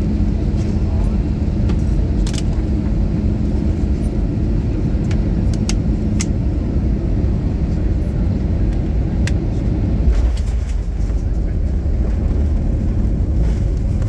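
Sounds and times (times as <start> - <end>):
low rumble of engines and wheels: 0.0 - 14.0.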